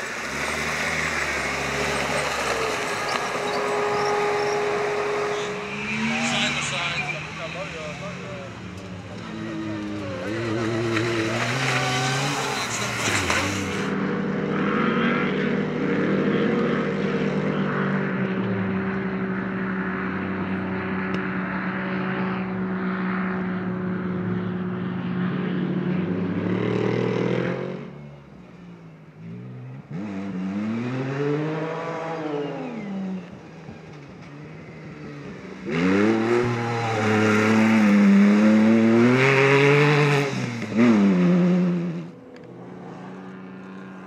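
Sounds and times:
buggy engine revving: 0.0s - 14.2s, 29.2s - 42.2s
racing engines at high revs: 0.0s - 28.0s, 29.2s - 44.0s.

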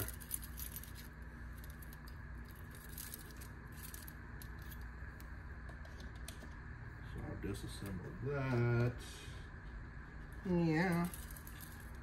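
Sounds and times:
metal keys and bits rattling: 0.0s - 4.9s, 10.8s - 12.0s
steady low hum: 0.0s - 12.0s.

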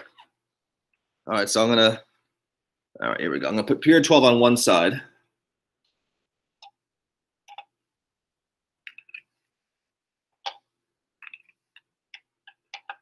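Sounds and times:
plastic tubes clicking: 10.4s - 13.0s.

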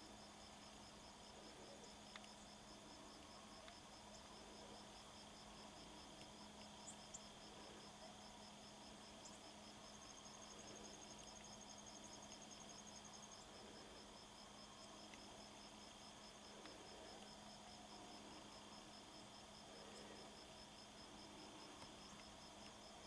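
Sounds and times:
insects chirping: 0.1s - 23.0s.

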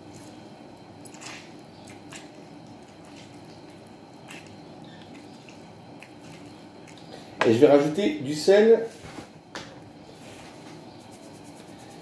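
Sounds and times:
juice dripping into bowl: 0.0s - 7.3s.

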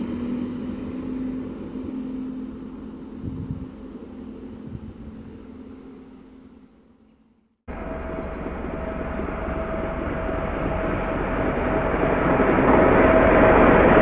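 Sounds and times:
diesel locomotive passing: 0.0s - 6.8s, 7.7s - 14.0s
steady whine: 7.7s - 14.0s.

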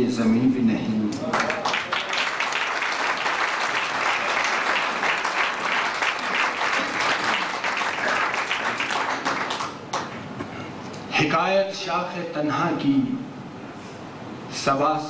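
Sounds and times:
audience applauding: 1.2s - 10.2s.

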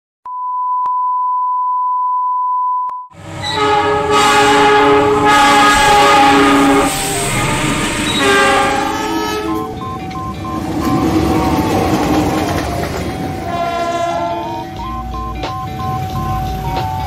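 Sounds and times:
locomotive horn chord: 3.2s - 9.8s, 13.4s - 14.9s
electronic beep tone: 9.1s - 13.6s, 14.4s - 17.0s.

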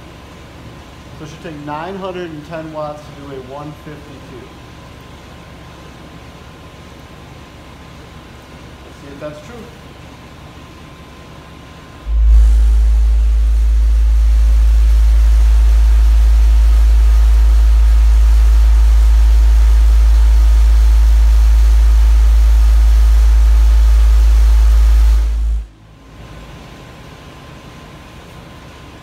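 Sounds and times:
loud deep bass tone: 12.0s - 25.7s.

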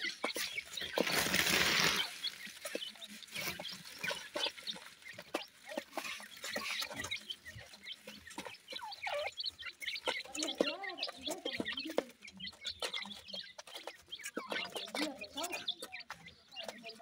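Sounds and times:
chicks cheeping softly: 0.0s - 17.0s
chicks pecking clicks: 0.0s - 17.0s
wing flapping: 0.7s - 2.8s.

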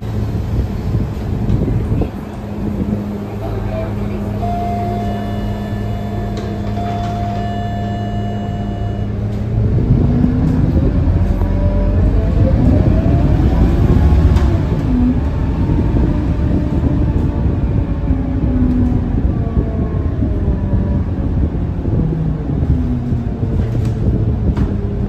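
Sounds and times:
bus engine idling: 0.0s - 15.6s
rising engine whine: 0.0s - 25.0s
door-closing warning tone: 4.3s - 9.6s.

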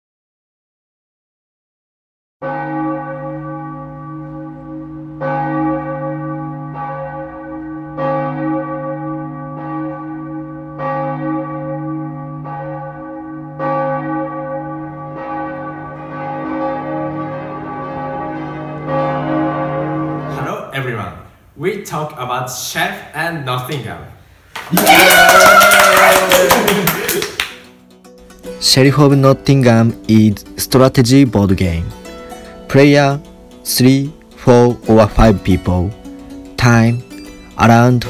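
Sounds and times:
church bells ringing: 2.4s - 20.7s, 27.8s - 38.0s.

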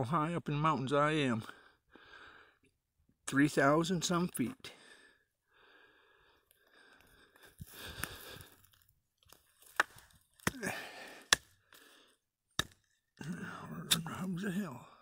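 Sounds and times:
twigs snapping: 6.5s - 13.1s
footsteps crunching on forest floor: 6.6s - 10.4s.

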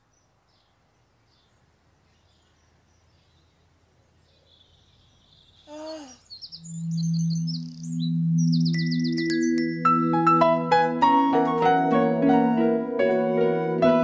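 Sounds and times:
faint birdsong: 0.0s - 9.8s
high bird-like chirps: 4.5s - 9.8s
low synthesizer tones: 6.5s - 14.0s.

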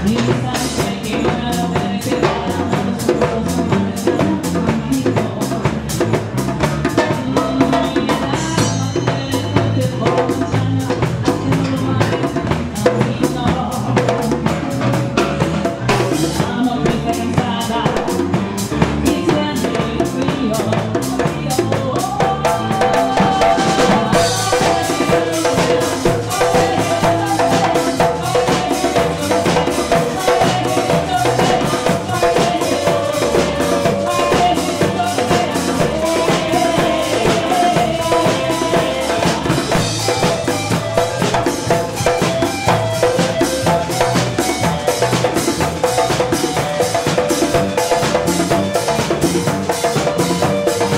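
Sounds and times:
live band playing: 0.0s - 50.9s
held melodic line: 22.6s - 50.9s.

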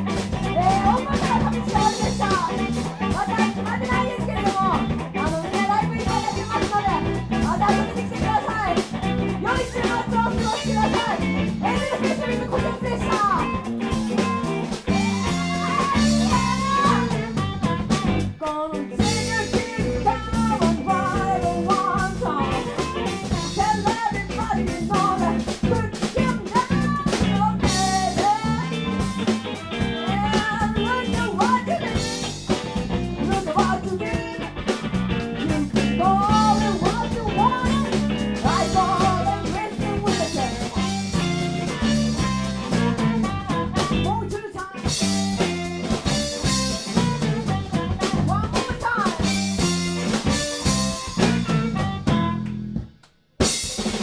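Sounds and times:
woman singing: 0.0s - 34.8s, 35.4s - 52.3s
electric bass: 0.0s - 54.0s
electric guitar: 0.0s - 54.0s
harmonica: 35.5s - 44.2s, 44.9s - 52.5s.

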